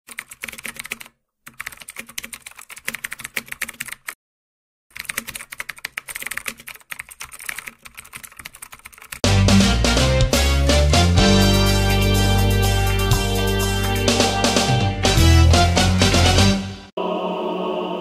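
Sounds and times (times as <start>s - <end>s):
computer keyboard typing: 0.1s - 4.2s, 4.9s - 9.2s
loud music with heavy bass: 9.3s - 16.7s.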